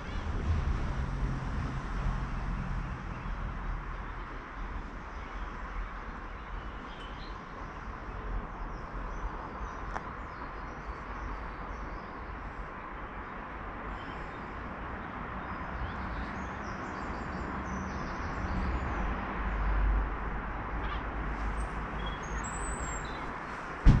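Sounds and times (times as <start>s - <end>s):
low rumble: 0.0s - 4.2s
distant road traffic: 0.0s - 24.0s.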